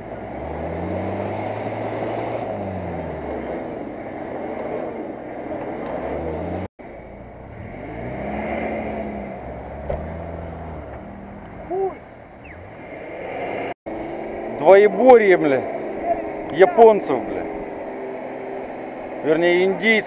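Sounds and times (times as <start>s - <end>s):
engine revving hard: 0.0s - 3.8s, 7.5s - 11.4s, 12.7s - 20.0s
off-road engine revving: 0.0s - 20.0s.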